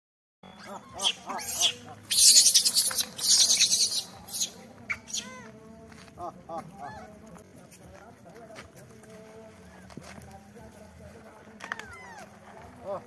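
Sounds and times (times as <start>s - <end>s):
chirping animal calls: 0.4s - 5.5s, 11.6s - 12.8s.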